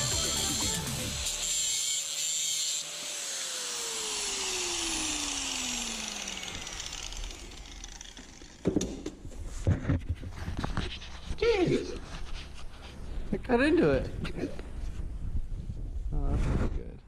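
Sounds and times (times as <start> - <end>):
grinder motor winding down: 0.0 - 8.7
angle grinder cutting metal: 0.0 - 9.0.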